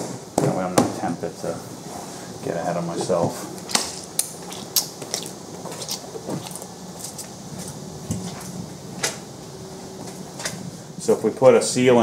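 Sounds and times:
faint steady hum: 0.0s - 12.0s
shoes squeaking on wet concrete: 4.4s - 7.8s.

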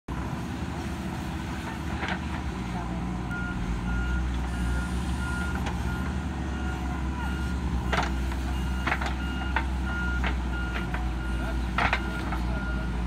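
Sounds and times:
diesel engine running: 0.1s - 13.0s
reversing alarm beeping: 3.3s - 13.0s.

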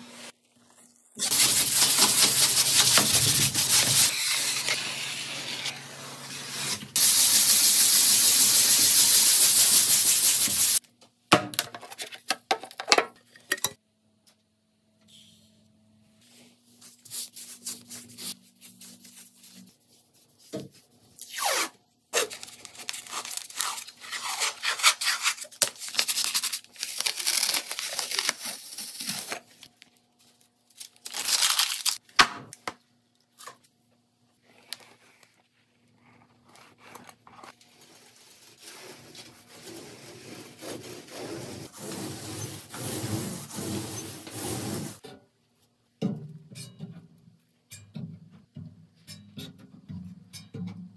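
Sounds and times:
paintbrush strokes on wall: 37.8s - 45.0s.

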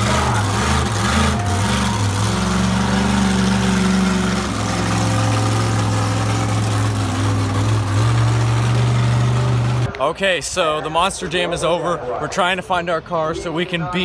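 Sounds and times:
truck engine running: 0.0s - 10.0s.

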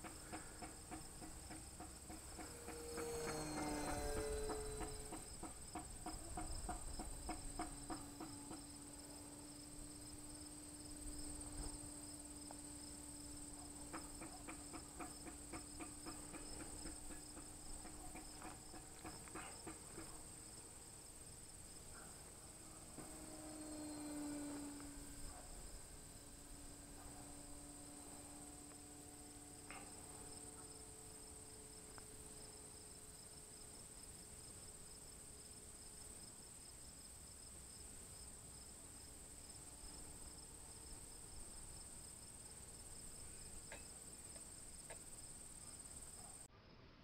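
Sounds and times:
model airplane motor humming: 0.0s - 36.2s
steady high buzz: 0.0s - 46.5s.

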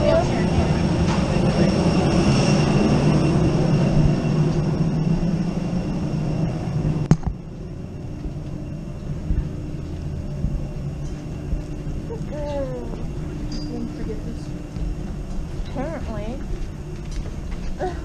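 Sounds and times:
aircraft machinery hum: 0.0s - 18.0s
faint high whine: 0.0s - 18.0s.

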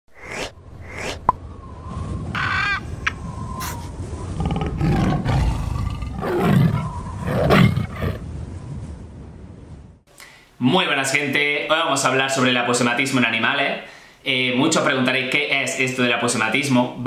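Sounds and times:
tiger roaring: 4.3s - 8.2s.

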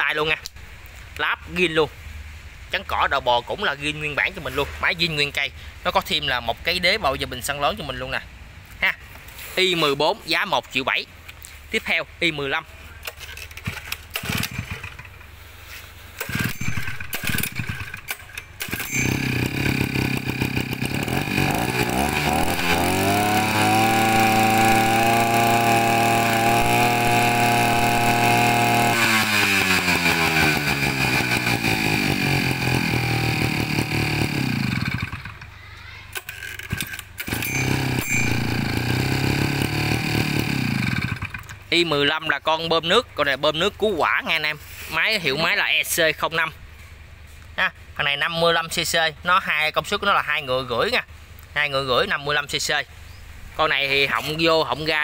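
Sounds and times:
small water pump engine revving: 13.6s - 15.2s, 16.2s - 35.5s, 36.2s - 41.6s.

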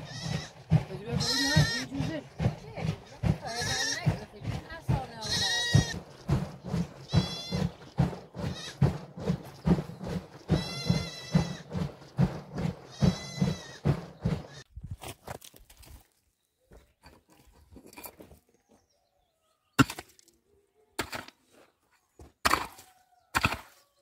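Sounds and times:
goats bleating: 0.0s - 1.9s, 3.4s - 4.2s, 5.2s - 6.0s, 7.1s - 7.7s, 8.5s - 8.8s, 10.6s - 11.6s, 12.9s - 13.8s
dull knocks and thumps: 0.0s - 14.6s.

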